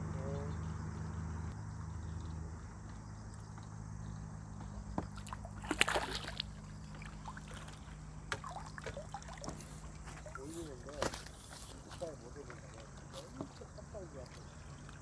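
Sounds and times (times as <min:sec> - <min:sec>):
water splashing: 0:05.0 - 0:15.0.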